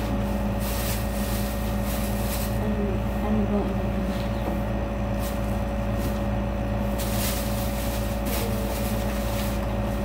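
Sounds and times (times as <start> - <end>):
low machine hum: 0.0 - 10.0.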